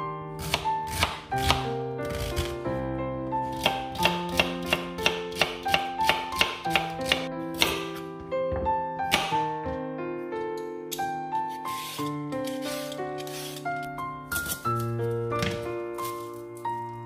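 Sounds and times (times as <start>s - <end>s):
background music: 0.0s - 17.0s
knife chopping on cutting board: 0.4s - 2.5s, 3.6s - 9.5s.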